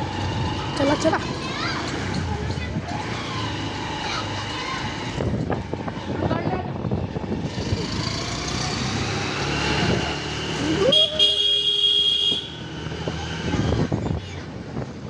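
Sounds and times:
motorcycle horn: 10.9s - 12.6s.

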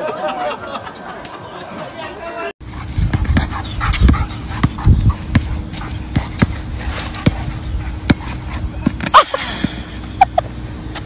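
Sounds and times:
basketball bouncing: 3.0s - 9.8s.

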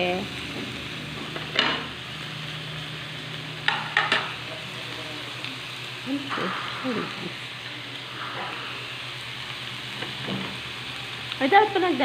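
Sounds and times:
meat sizzling on a grill pan: 0.0s - 12.0s.

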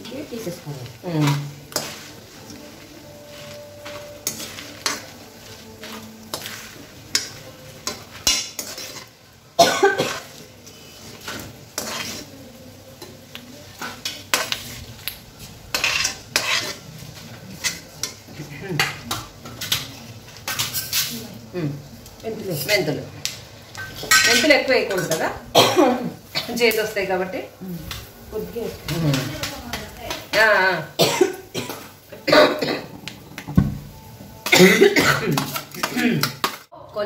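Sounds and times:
metal spoon scraping a pan: 0.0s - 9.3s, 10.0s - 21.2s, 22.6s - 25.4s, 34.4s - 36.7s
hot oil sizzling: 0.0s - 37.0s.

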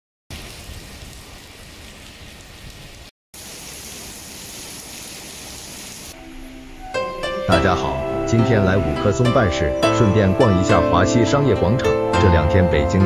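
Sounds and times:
heavy rain falling: 0.3s - 6.2s.

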